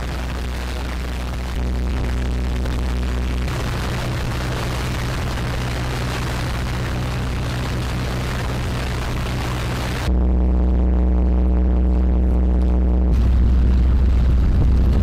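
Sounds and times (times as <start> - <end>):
churning propeller wash: 0.0 - 10.1
electronic music: 0.0 - 15.0
low hum: 0.0 - 15.0.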